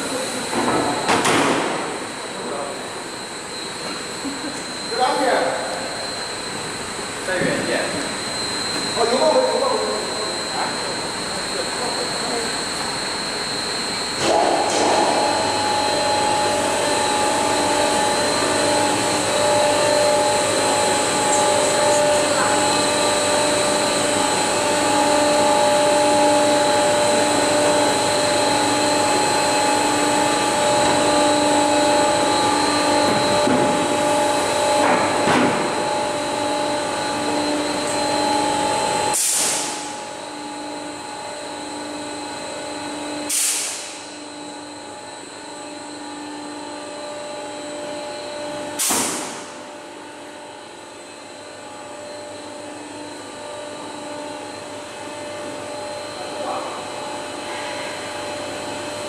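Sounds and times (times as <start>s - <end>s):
machinery drone: 0.0s - 50.1s.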